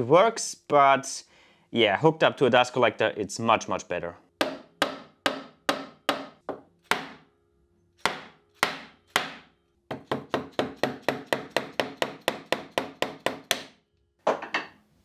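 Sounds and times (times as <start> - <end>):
hammer striking a chisel: 4.4 - 7.3, 8.0 - 14.7.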